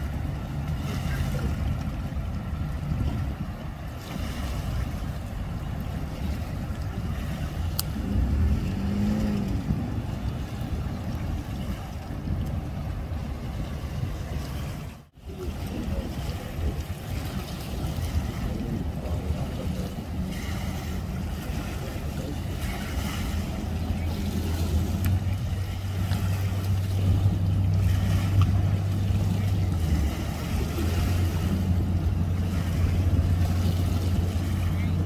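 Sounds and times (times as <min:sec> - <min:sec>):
outdoor noise: 0:00.0 - 0:15.6
low engine drone: 0:00.0 - 0:35.0.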